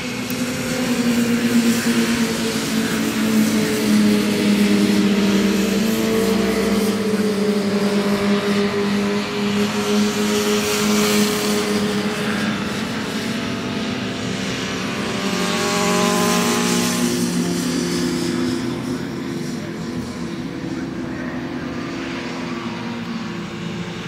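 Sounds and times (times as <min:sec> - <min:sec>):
racing motorcycle engines: 0:00.0 - 0:24.0.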